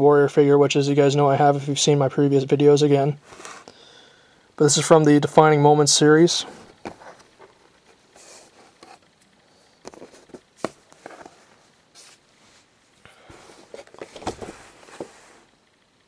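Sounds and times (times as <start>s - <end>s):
rustling: 6.4s - 9.2s, 9.8s - 15.8s
cardboard box being handled: 6.6s - 7.6s, 8.2s - 9.0s, 9.8s - 12.2s, 13.3s - 15.5s.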